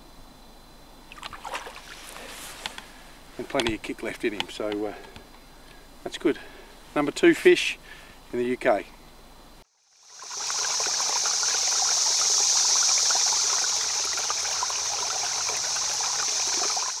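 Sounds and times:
running water trickling: 1.1 - 3.6, 9.9 - 17.0.

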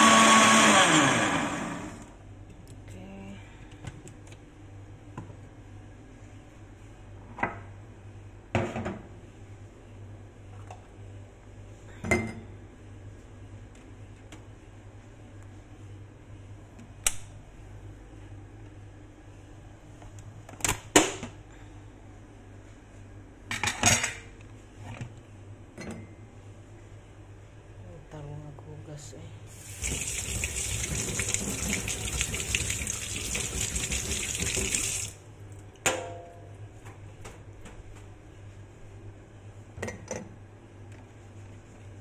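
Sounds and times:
low steady hum: 1.2 - 42.0
knocks and clinks of kitchenware: 12.0 - 12.5, 35.8 - 36.5.

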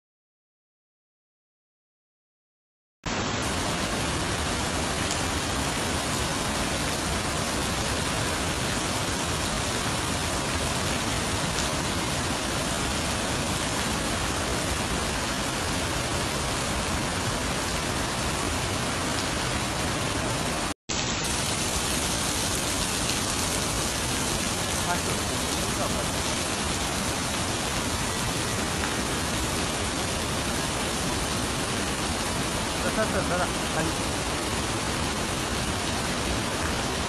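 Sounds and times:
heavy rain pouring: 3.1 - 37.0.

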